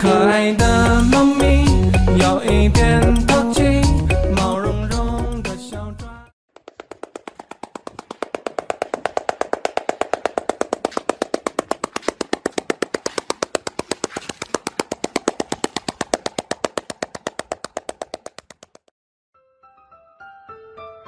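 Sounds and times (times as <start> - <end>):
seal slapping its belly: 6.6 - 18.8.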